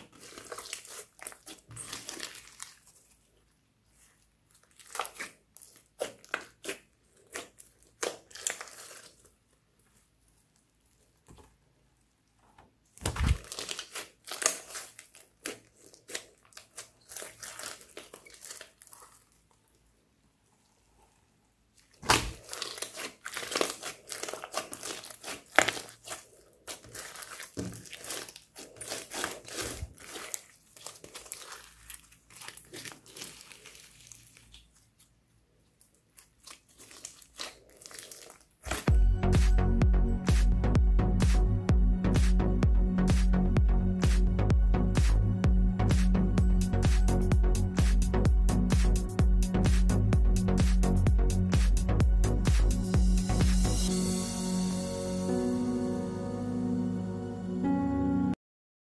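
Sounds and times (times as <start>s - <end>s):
slime popping and crackling: 0.0s - 3.3s, 4.0s - 10.1s, 13.0s - 19.7s, 21.8s - 35.1s, 35.8s - 38.9s.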